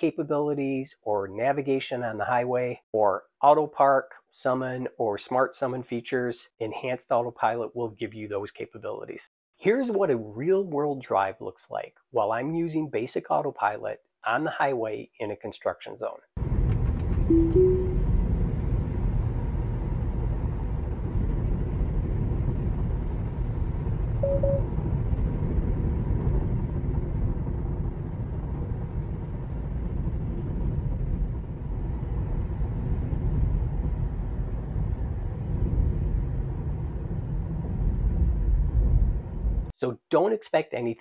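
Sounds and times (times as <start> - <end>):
short beep: 17.3 - 18.2, 24.2 - 24.7.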